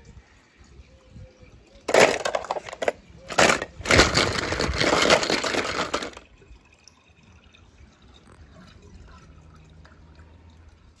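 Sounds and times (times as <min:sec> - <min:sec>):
pool water dripping and lapping: 0:00.0 - 0:02.0, 0:05.9 - 0:11.0.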